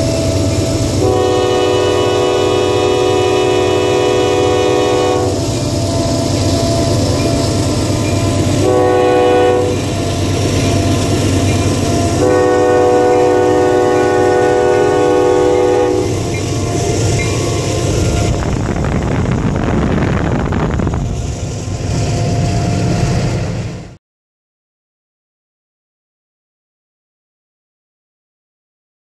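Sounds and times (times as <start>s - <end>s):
locomotive air horn blasts: 0.0s - 6.9s, 8.3s - 11.1s, 11.8s - 18.5s
locomotives rumbling past: 0.0s - 24.0s.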